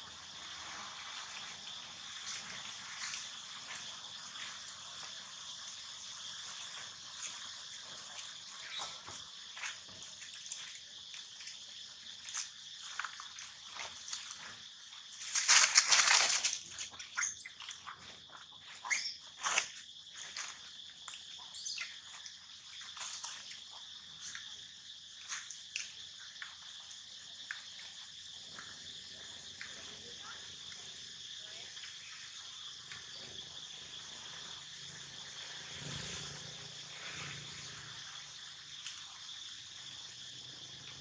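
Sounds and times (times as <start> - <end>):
high insect drone: 0.0 - 41.0
dry leaves crackling and rustling: 15.2 - 16.7.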